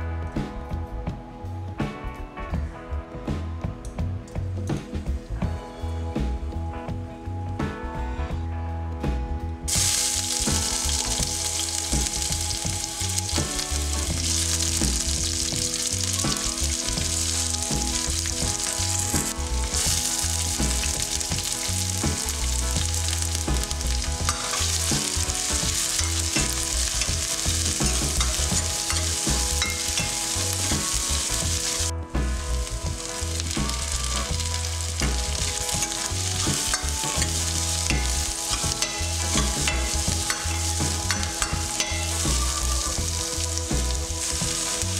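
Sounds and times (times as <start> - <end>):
vegetables sizzling in oil: 9.7 - 44.9.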